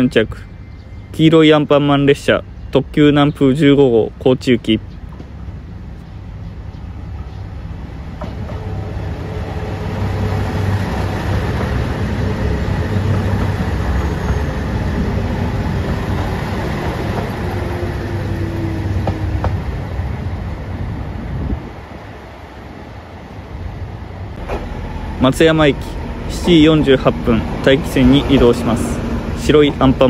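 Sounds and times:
diesel train engine drone: 0:00.0 - 0:30.0
train wheels rumbling on rails: 0:04.8 - 0:30.0.

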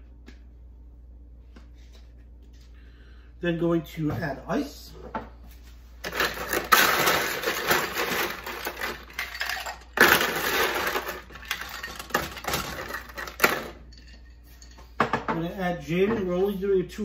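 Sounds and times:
ice cubes clattering into glass: 0:06.0 - 0:14.3.

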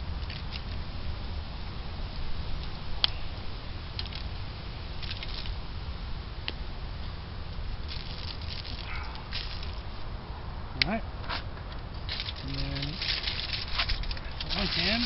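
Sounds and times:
foil rustling: 0:07.9 - 0:09.9, 0:12.0 - 0:15.0.

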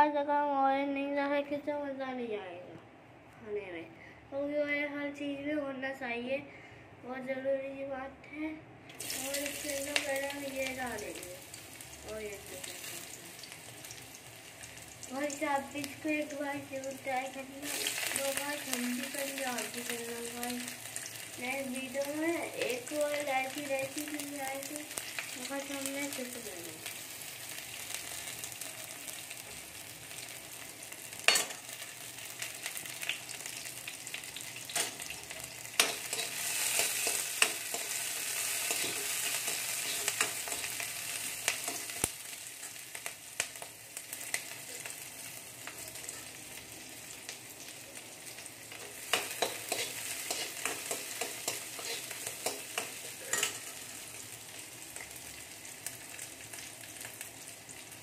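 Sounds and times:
vegetables sizzling in hot oil: 0:08.9 - 0:58.0
spoon clicking and scraping pan: 0:35.8 - 0:38.0, 0:38.6 - 0:40.8, 0:48.9 - 0:53.8.

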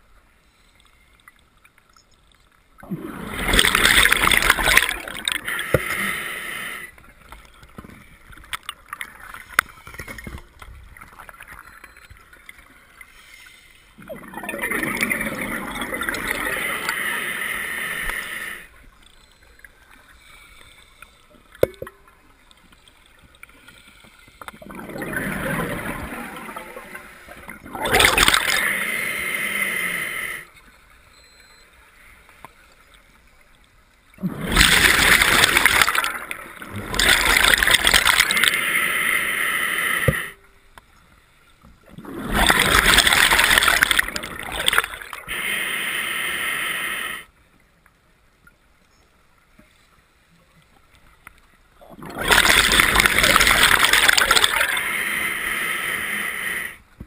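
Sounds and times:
regulator bubbles rushing underwater: 0:02.8 - 0:05.5, 0:14.0 - 0:16.7, 0:24.5 - 0:28.8, 0:34.2 - 0:38.6, 0:41.9 - 0:45.3, 0:51.9 - 0:54.9.

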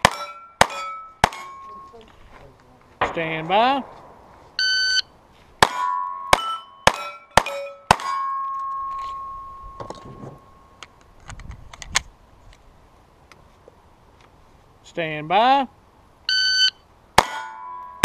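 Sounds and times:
pistol shots: 0:00.0 - 0:01.6, 0:03.0 - 0:04.4, 0:05.6 - 0:08.2
steel plate target ringing: 0:00.0 - 0:02.0, 0:05.6 - 0:10.8, 0:17.2 - 0:18.0
shot timer beep: 0:04.6 - 0:05.1.

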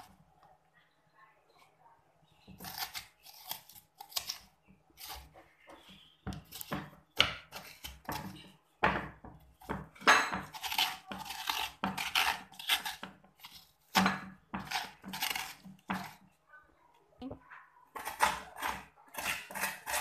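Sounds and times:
metal spoon scraping melon: 0:02.4 - 0:08.6, 0:09.6 - 0:16.4, 0:17.5 - 0:20.0.

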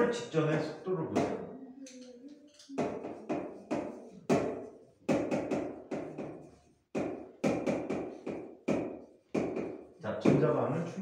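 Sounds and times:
sharp taps on a board: 0:02.8 - 0:10.5.

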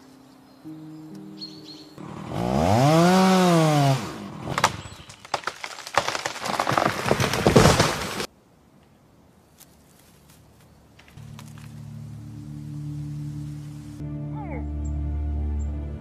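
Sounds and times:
dense crackling and crunching: 0:04.5 - 0:08.3.

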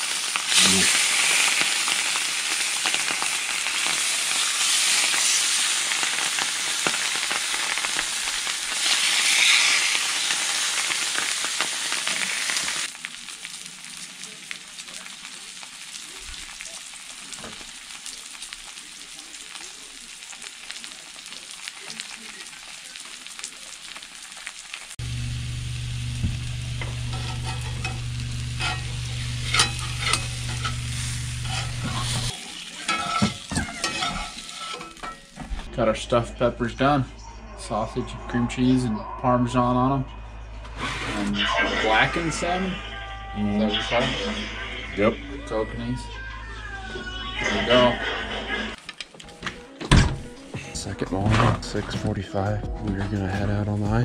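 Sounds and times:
fish sizzling in a skillet: 0:00.0 - 0:35.5
spatula scraping a pan: 0:08.8 - 0:10.4, 0:27.0 - 0:35.3
low hum: 0:25.0 - 0:32.3.

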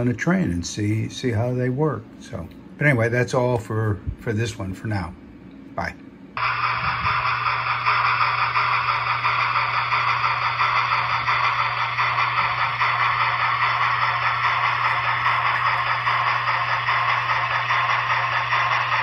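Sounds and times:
low hum: 0:03.9 - 0:19.0
model steam train hissing: 0:06.4 - 0:19.0.

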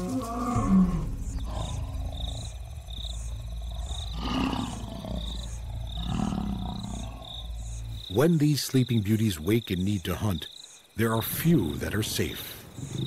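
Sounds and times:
lion roaring: 0:00.0 - 0:07.9
insects chirping: 0:00.0 - 0:13.0.

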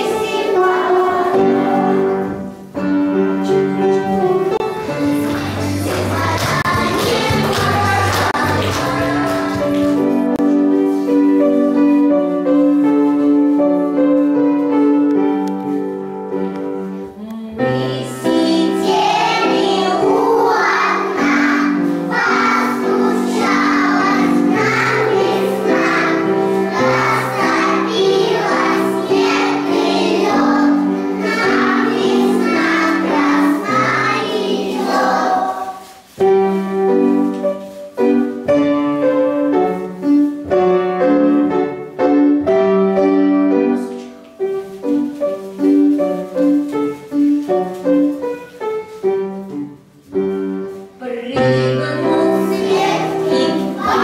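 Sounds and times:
children singing: 0:00.0 - 0:02.3, 0:04.5 - 0:10.2, 0:17.8 - 0:36.0, 0:51.8 - 0:54.0
instrumental accompaniment: 0:00.0 - 0:54.0.

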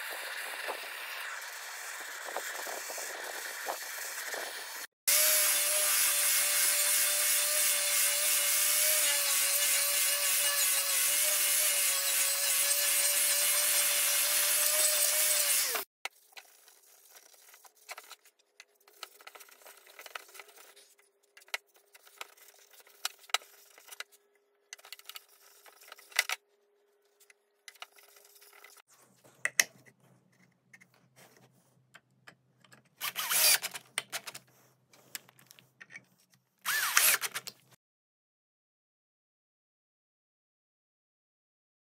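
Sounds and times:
drill driver running: 0:03.3 - 0:15.9, 0:33.0 - 0:33.8, 0:36.7 - 0:37.5
handling clicks and rubbing: 0:27.0 - 0:36.5.

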